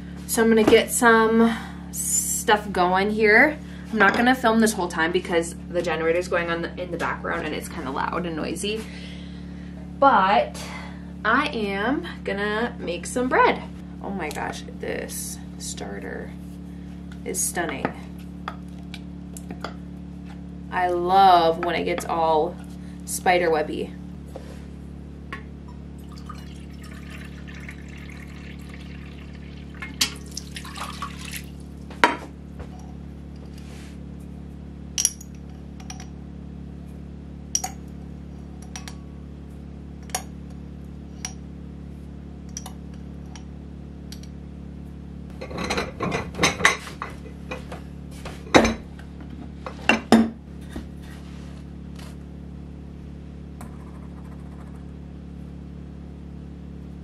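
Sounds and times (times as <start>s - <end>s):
generator humming: 0.0s - 57.0s
water pouring into metal cup: 26.0s - 31.6s.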